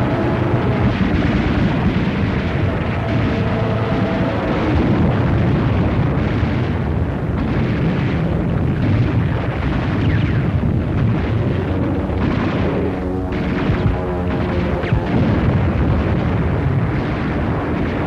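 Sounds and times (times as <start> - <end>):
explosions: 0.0 - 18.0
gunfire: 0.0 - 18.0.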